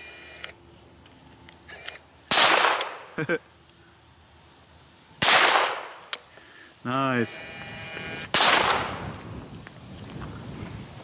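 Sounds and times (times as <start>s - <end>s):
gunshots with short echo: 8.3s - 9.0s.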